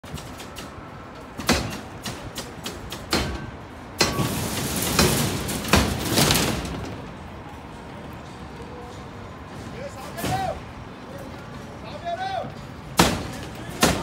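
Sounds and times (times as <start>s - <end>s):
construction knocks and bangs: 0.0s - 7.3s, 9.6s - 10.6s, 12.5s - 14.0s.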